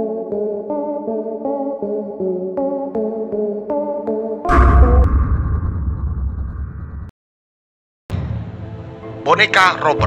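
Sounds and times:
deep boom with ringing hit: 4.5s - 7.1s.

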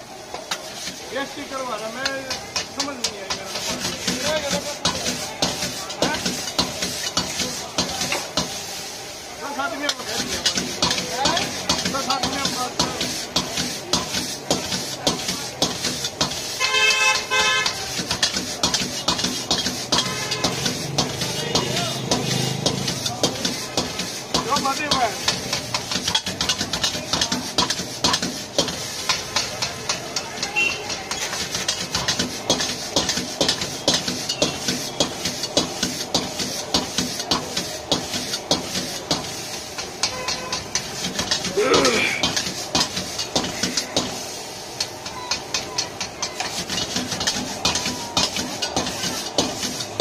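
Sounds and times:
frying hiss: 0.0s - 50.0s
gas flame: 0.0s - 50.0s
metal spatula clanking on wok: 1.8s - 8.6s, 9.8s - 50.0s
vehicle horn honking: 16.6s - 17.8s, 20.0s - 20.6s, 40.1s - 40.7s.

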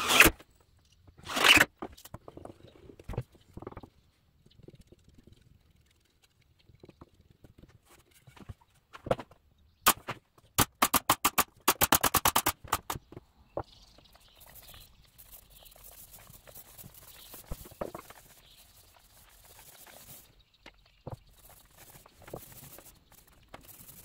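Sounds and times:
nail gun firing: 10.6s - 13.0s.

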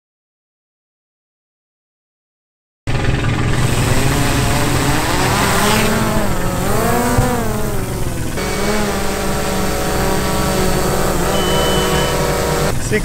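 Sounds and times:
drone propellers whining: 2.9s - 13.0s.

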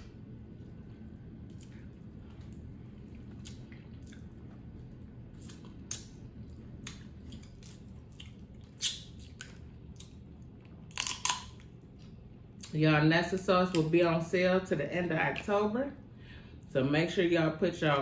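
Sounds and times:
steady low hum: 0.0s - 18.0s
chewing: 0.6s - 12.7s.

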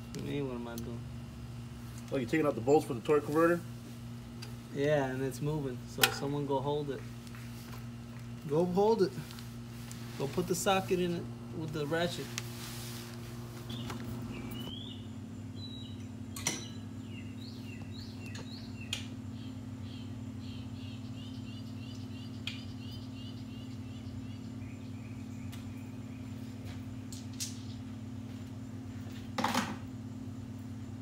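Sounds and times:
steady low hum: 0.0s - 31.0s
songbird chirping: 13.6s - 28.3s.

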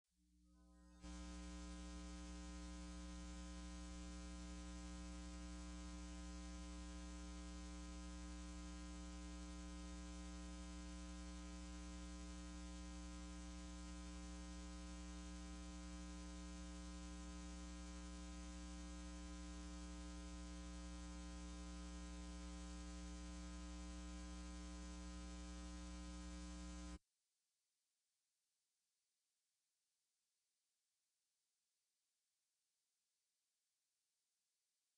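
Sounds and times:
buzzy mains hum: 0.6s - 27.0s.

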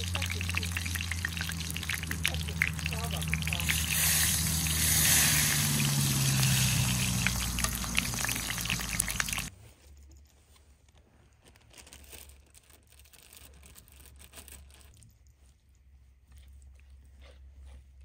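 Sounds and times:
vegetables sizzling in a skillet: 0.0s - 9.5s.

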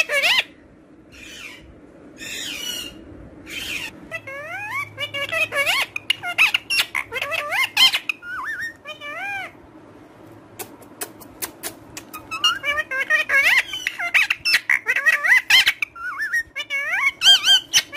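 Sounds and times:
parakeet sharp clicks: 10.6s - 12.3s.

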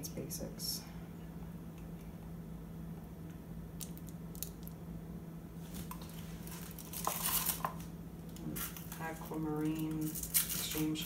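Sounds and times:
steady low hum: 0.0s - 11.0s
rustling scrape: 5.6s - 7.8s.

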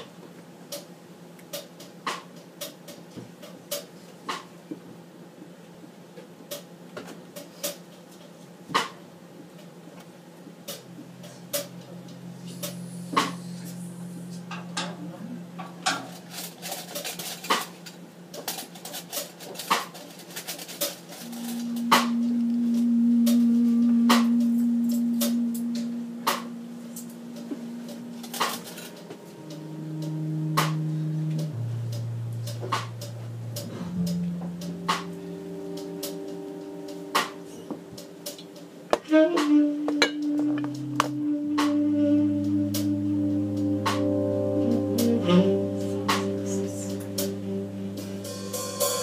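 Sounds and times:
low steady hum: 8.6s - 19.0s, 20.4s - 49.0s
held low note: 10.7s - 18.0s, 21.1s - 49.0s.

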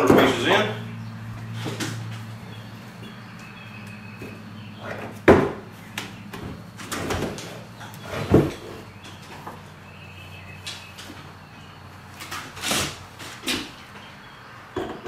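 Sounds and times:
wooden frame thumping on bench: 4.2s - 7.4s
wood scraping and clatter: 6.4s - 9.6s.

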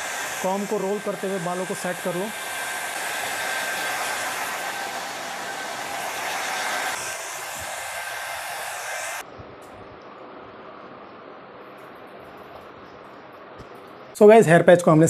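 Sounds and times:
hair dryer blowing: 0.0s - 9.3s.

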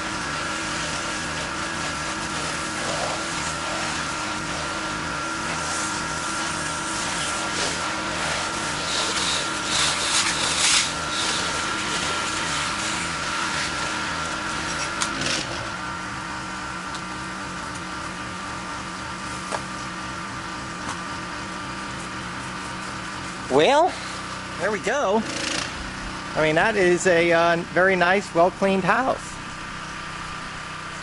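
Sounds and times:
pressure washer engine running: 0.0s - 31.0s.

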